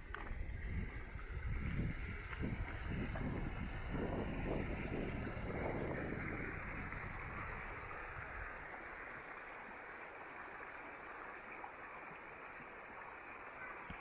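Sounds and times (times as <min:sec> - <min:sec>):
river flowing over rocks: 0:00.0 - 0:14.0.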